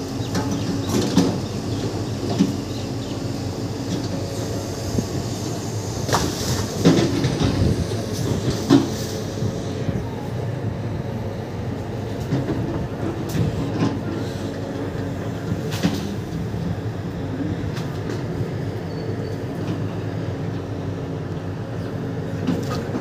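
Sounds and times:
excavator diesel engine running: 0:00.0 - 0:23.0.

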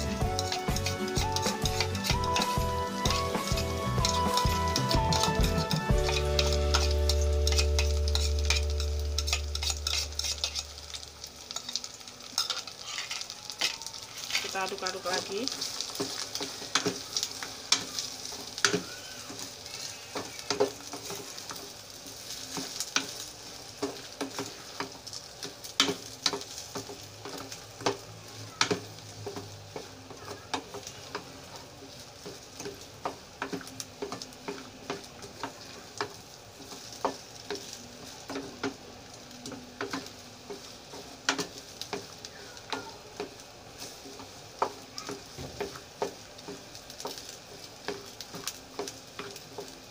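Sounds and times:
spatula tapping and scraping pan: 0:00.0 - 0:14.6, 0:22.5 - 0:23.2, 0:23.8 - 0:31.3, 0:32.2 - 0:38.8, 0:39.5 - 0:43.4, 0:44.1 - 0:49.9
fried rice sizzling: 0:00.0 - 0:49.9.

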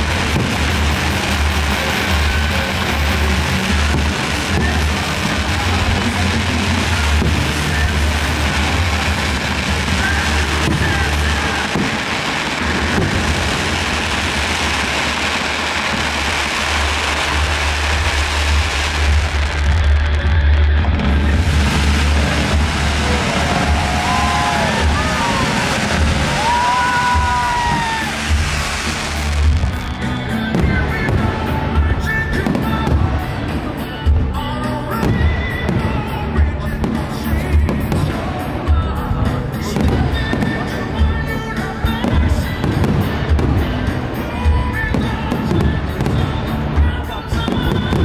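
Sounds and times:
fireworks crackling: 0:00.0 - 0:48.0
loud music: 0:00.0 - 0:48.0
low rumble: 0:15.8 - 0:33.5.

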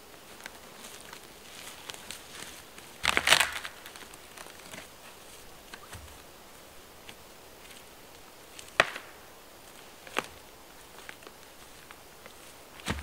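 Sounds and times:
footsteps in leaf litter: 0:00.0 - 0:06.3, 0:07.0 - 0:13.0
twigs crackling: 0:00.1 - 0:13.0
sharp wood crack: 0:03.0 - 0:04.9, 0:08.6 - 0:09.2, 0:12.8 - 0:13.0.

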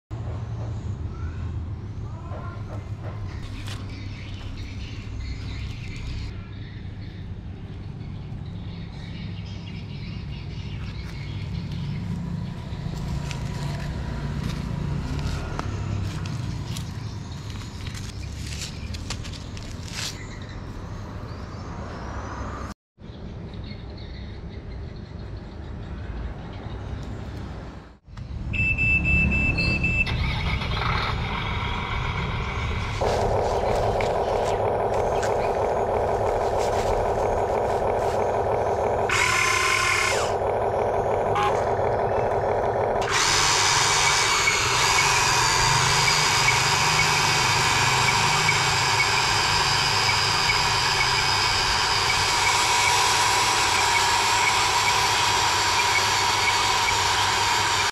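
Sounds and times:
small electric motors whining: 0:10.8 - 0:20.2, 0:30.3 - 0:57.9
harsh whir: 0:30.0 - 0:57.9.

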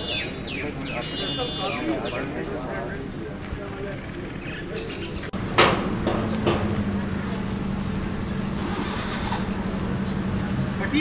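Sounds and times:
scattered voices: 0:00.0 - 0:05.4
vehicle motor idling hum: 0:00.0 - 0:11.0.

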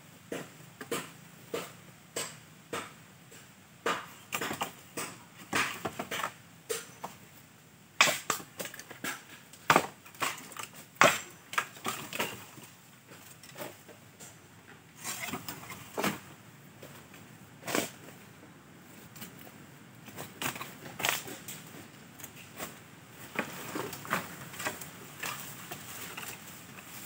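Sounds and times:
dry bamboo cracking and crunching: 0:20.0 - 0:27.0.

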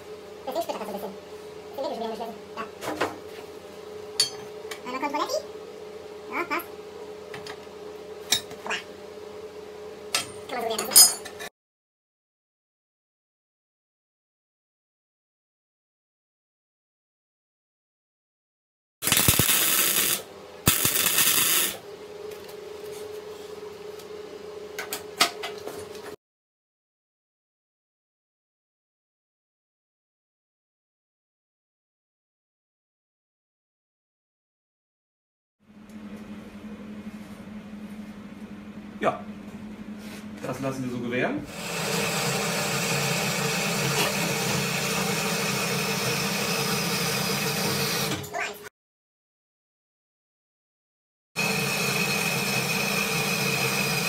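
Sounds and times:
workshop machine humming: 0:00.0 - 0:11.5, 0:19.0 - 0:26.2, 0:35.6 - 0:48.6, 0:51.4 - 0:54.0
welding crackling hiss: 0:19.0 - 0:21.8
steady hum: 0:19.0 - 0:24.8, 0:35.6 - 0:41.7.

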